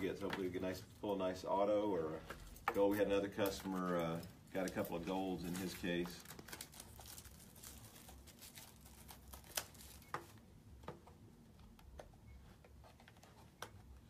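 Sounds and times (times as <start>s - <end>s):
card packaging crinkling: 2.9s - 10.4s.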